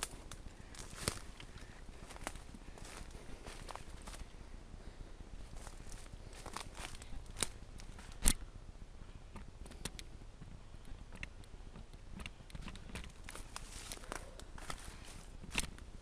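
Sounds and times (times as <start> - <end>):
dry sticks cracking: 0.0 - 4.3, 5.5 - 8.4, 9.3 - 15.9.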